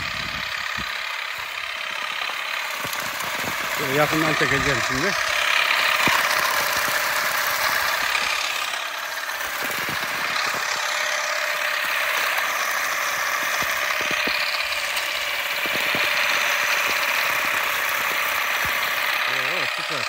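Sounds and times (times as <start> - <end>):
olive harvester mechanical whir: 0.0 - 20.0.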